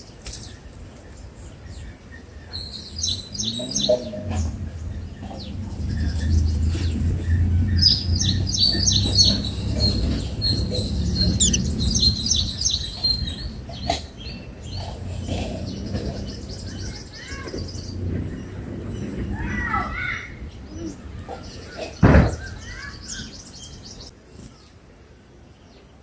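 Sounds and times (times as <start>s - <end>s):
birds chirping: 4.7s - 19.3s.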